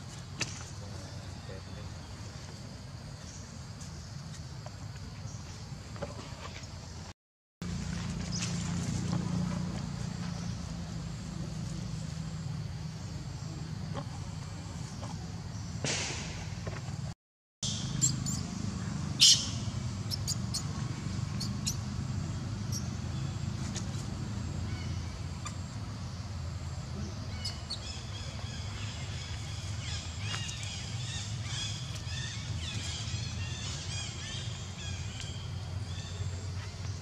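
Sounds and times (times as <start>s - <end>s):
high chirping calls: 17.6s - 21.9s, 27.0s - 36.2s.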